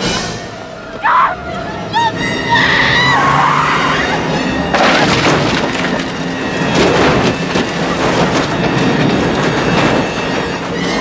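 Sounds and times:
crunching metal: 3.7 - 11.0
splintering wood: 4.7 - 10.0
van crash impact: 4.7 - 10.4.

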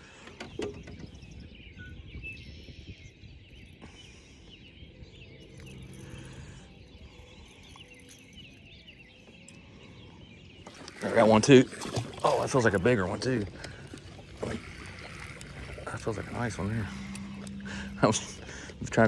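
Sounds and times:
birds chirping and trilling: 0.0 - 19.0
low rumble: 5.2 - 7.8, 13.4 - 19.0.

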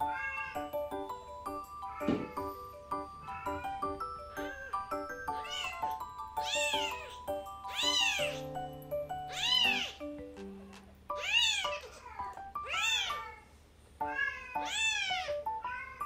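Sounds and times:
kitten meowing: 4.4 - 8.5, 9.3 - 10.0, 11.1 - 13.4, 14.1 - 16.0.

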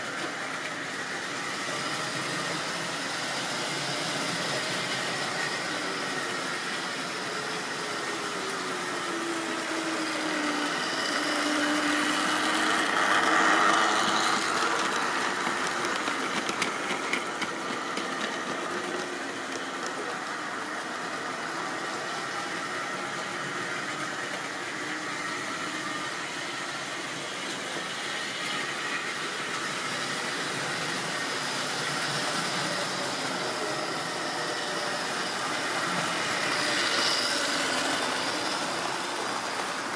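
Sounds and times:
wheels clicking over rails: 10.6 - 20.2.

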